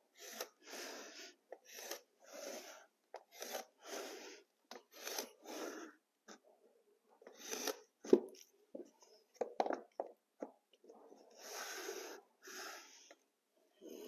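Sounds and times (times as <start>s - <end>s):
pencil rasping on vinyl plank: 0.1s - 5.9s, 11.2s - 13.2s.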